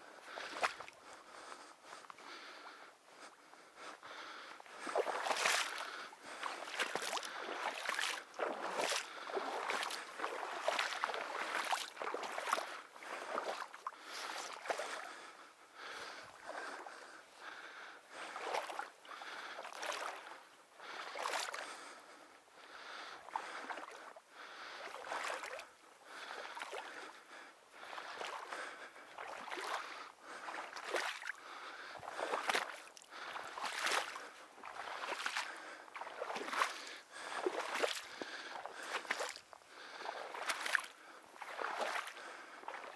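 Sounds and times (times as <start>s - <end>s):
footsteps splashing in shallow water: 0.3s - 22.1s, 22.7s - 42.9s.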